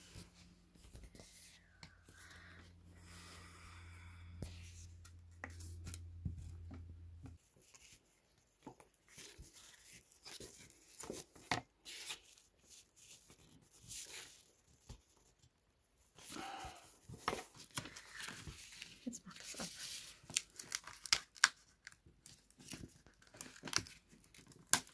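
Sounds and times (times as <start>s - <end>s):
low steady hum: 0.0s - 8.5s.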